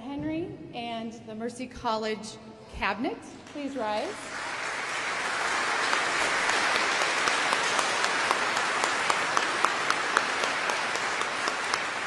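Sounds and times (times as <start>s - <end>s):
individual sharp claps: 3.4s - 12.0s
audience applauding: 3.9s - 12.0s.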